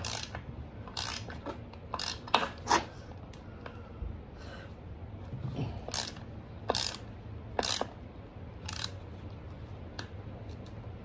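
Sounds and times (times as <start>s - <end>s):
ratcheting wrench clicking: 0.0s - 2.7s, 5.9s - 8.0s, 8.6s - 9.0s.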